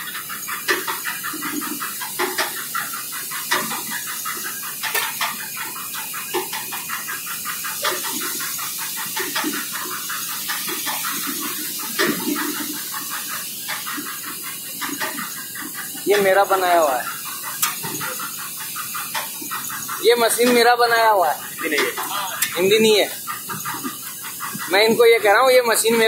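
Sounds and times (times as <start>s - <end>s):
machine rattling: 0.0s - 26.0s
steady machine hiss: 0.0s - 26.0s.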